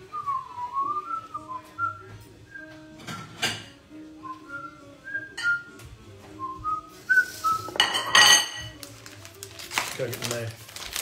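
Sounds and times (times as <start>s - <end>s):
person whistling a tune: 0.0s - 3.0s, 4.2s - 8.0s
kitchenware clattering: 2.9s - 3.8s, 7.5s - 8.8s.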